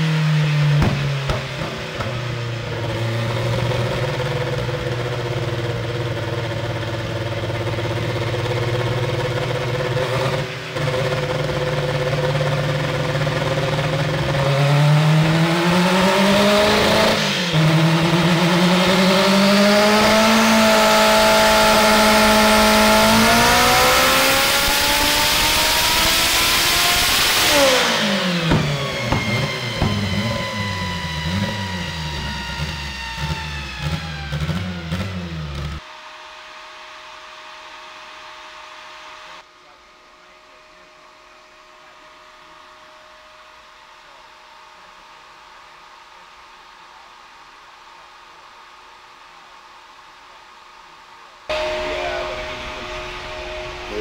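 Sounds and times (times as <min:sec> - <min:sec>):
car engine revving: 0:00.0 - 0:35.8, 0:51.5 - 0:54.0
turbo and exhaust rush: 0:00.0 - 0:39.5, 0:51.5 - 0:54.0.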